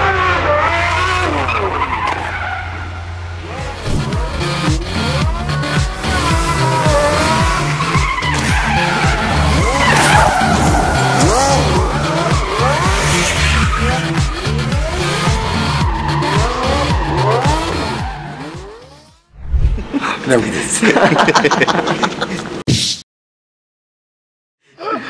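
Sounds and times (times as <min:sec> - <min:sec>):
car engine revving: 0:00.0 - 0:19.3
music bass line: 0:03.7 - 0:18.9
tyre squeal: 0:06.2 - 0:19.2.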